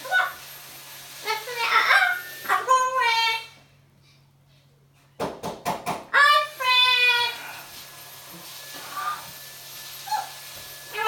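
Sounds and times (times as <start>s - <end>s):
parrot screaming: 10.0s - 10.4s.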